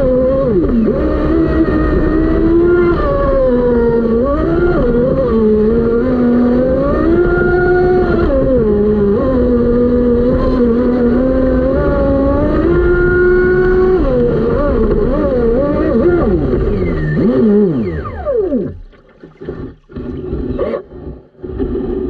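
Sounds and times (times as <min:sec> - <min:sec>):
water and wind rushing: 0:16.3 - 0:21.1.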